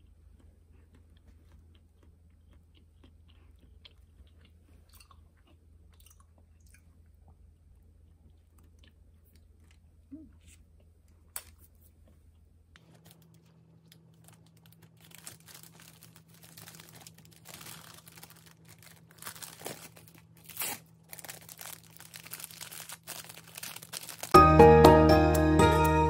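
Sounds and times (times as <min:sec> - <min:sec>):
plastic bags crinkling: 0:12.8 - 0:24.4.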